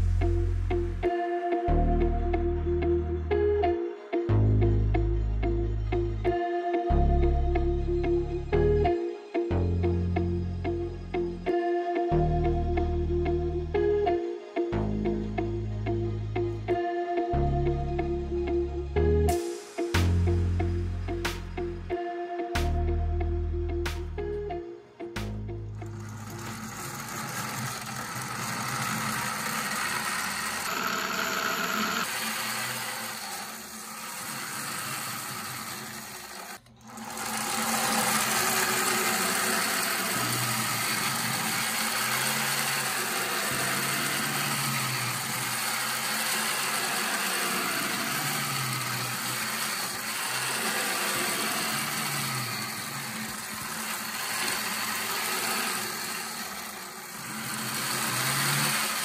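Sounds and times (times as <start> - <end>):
plastic gearbox whirring: 25.8 - 59.0.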